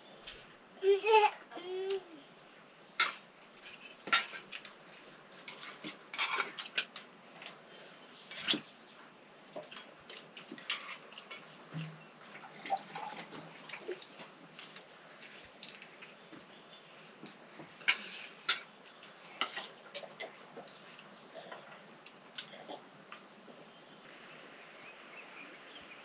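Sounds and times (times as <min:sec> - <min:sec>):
metal utensils and dishes clinking: 0:05.4 - 0:07.0, 0:10.6 - 0:11.5.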